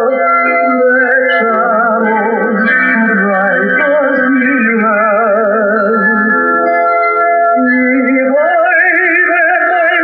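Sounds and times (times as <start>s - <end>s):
gospel hymn music: 0.0s - 10.0s.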